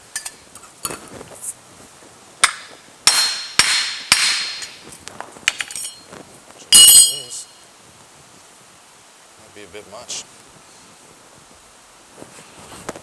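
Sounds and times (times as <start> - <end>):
sledgehammer striking metal: 2.4 - 4.8, 6.8 - 7.5.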